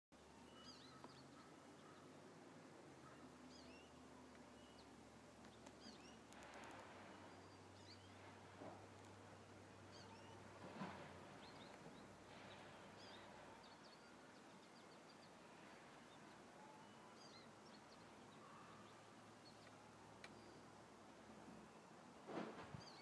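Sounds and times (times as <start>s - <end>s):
goldfinch chirping: 9.9s - 10.5s.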